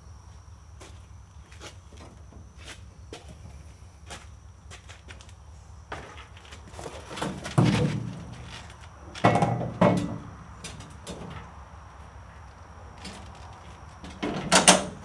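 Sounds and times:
metal frame clunks and scrapes: 5.9s - 11.6s, 13.0s - 15.0s.

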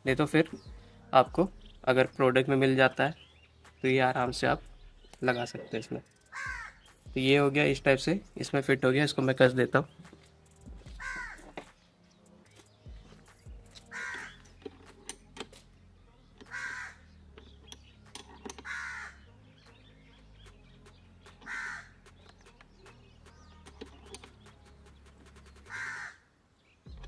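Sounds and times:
crow cawing: 6.3s - 6.9s, 10.9s - 11.7s, 13.9s - 14.4s, 16.4s - 17.0s, 18.6s - 19.2s, 21.4s - 22.0s, 25.7s - 26.3s.

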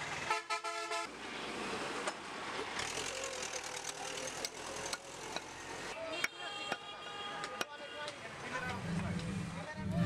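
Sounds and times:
roadside traffic: 0.0s - 10.0s.

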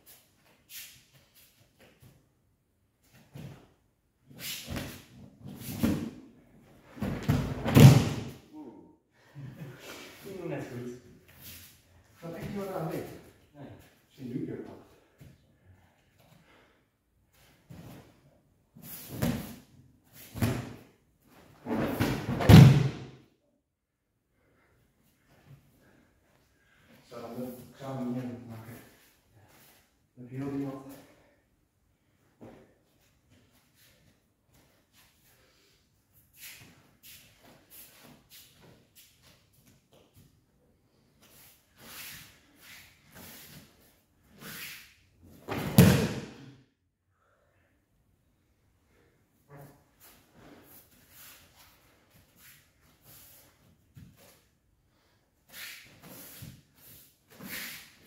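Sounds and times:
heavy thud of bodies on mat: 7.0s - 8.3s.

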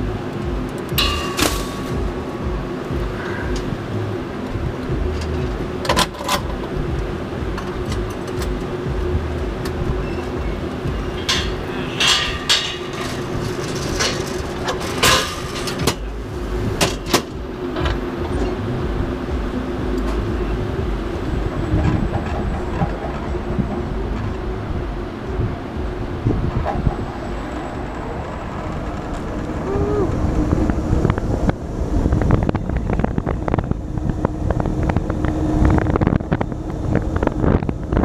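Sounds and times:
mechanical hum: 0.0s - 38.0s
wind rumbling on microphone: 0.0s - 38.0s
metallic clicks and clanks: 0.3s - 2.2s, 4.8s - 8.8s, 9.6s - 18.6s.

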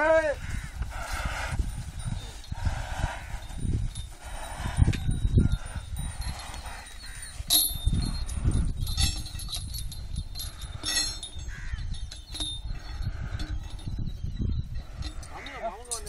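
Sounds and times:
men calling: 0.0s - 0.9s, 15.1s - 16.0s
sharp ringing clinks: 1.5s - 16.0s.

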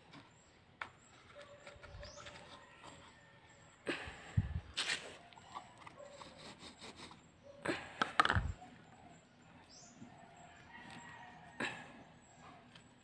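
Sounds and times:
hand digging in dry potting mix: 4.7s - 6.1s
scrapes: 4.7s - 7.2s.

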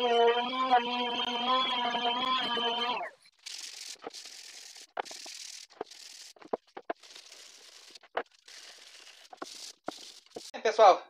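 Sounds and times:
hand brushing wooden board: 3.5s - 10.5s.

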